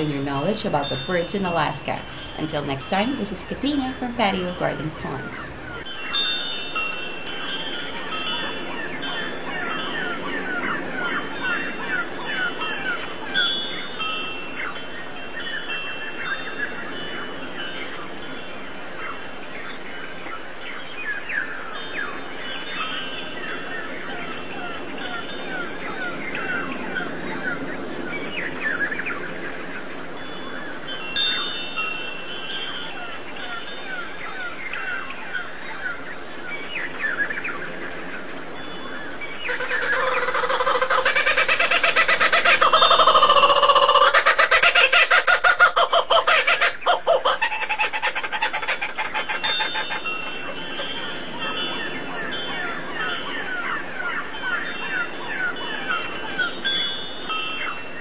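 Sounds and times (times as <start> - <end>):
small birds chirping: 0.0 - 44.8
fowl clucking: 39.5 - 49.8.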